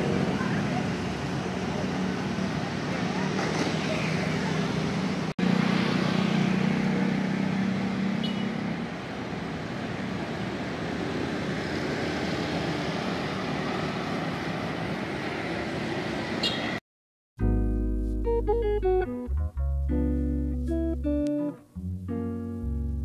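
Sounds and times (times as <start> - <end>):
passing traffic: 0.0 - 16.8.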